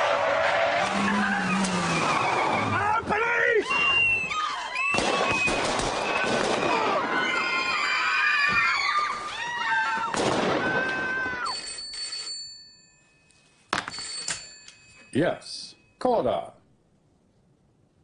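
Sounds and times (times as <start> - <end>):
sharp bangs: 4.9 - 7.2
telephone bell ringing: 11.5 - 16.0.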